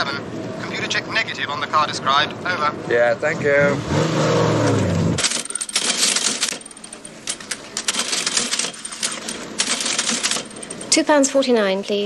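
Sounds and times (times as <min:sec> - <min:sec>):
cash register keys clicking: 0:05.2 - 0:11.0.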